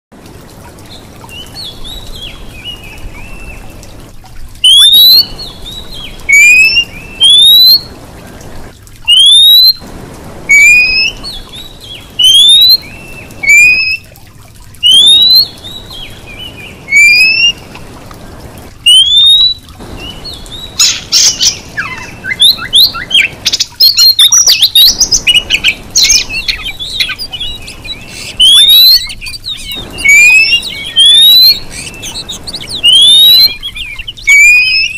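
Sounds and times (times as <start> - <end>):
bird whistling: 4.6 - 7.8, 9.1 - 9.8, 10.5 - 14.1, 14.8 - 15.5, 16.9 - 17.6, 18.9 - 34.9
bird chatter: 19.9 - 34.9.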